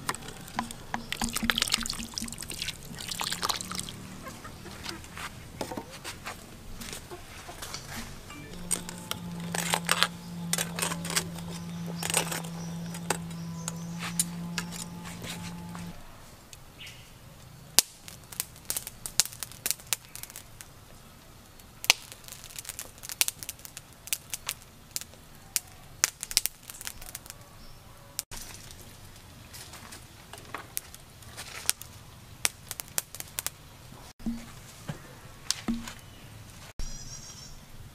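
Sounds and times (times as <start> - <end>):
steady low hum: 6.2 - 16.8
sharp clicks and cracks: 8.5 - 16.6, 17.8 - 20.8, 21.6 - 27.4, 30.3 - 33.6.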